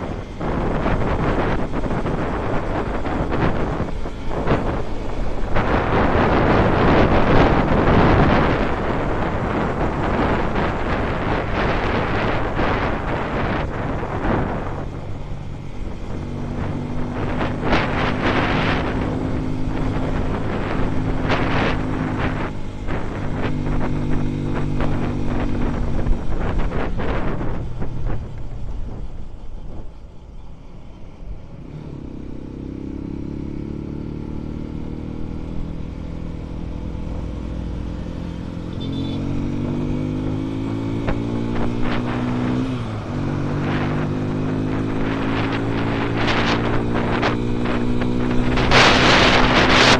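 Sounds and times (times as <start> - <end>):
motorcycle engine running: 0.0 - 30.6, 31.2 - 49.9
wind gusting on microphone: 0.0 - 49.9.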